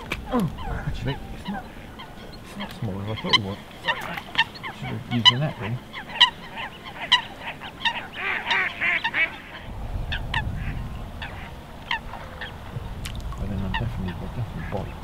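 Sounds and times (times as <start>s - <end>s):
geese honking: 0.0s - 15.0s
low rumble: 9.4s - 15.0s.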